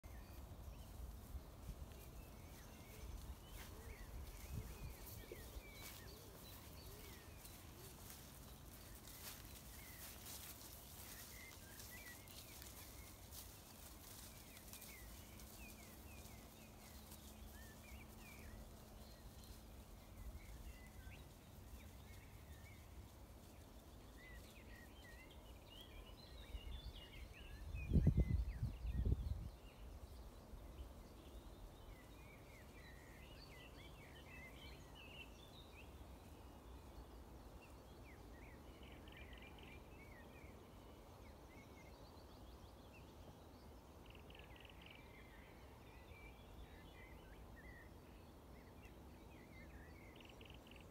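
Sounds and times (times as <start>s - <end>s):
small birds chirping: 0.0s - 50.9s
wind rumble on microphone: 0.1s - 7.6s, 23.5s - 32.2s.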